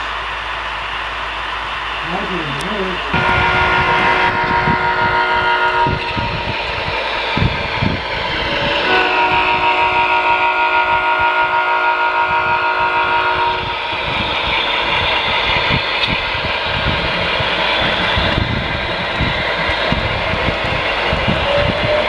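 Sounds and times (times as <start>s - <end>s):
multi-tone train horn: 3.1s - 6.5s, 8.8s - 13.9s.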